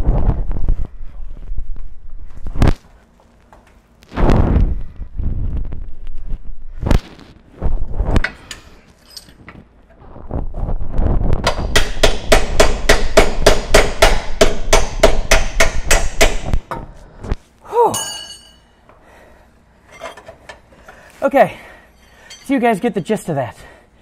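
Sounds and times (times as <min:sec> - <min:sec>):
metallic clang: 0:17.9 - 0:18.8.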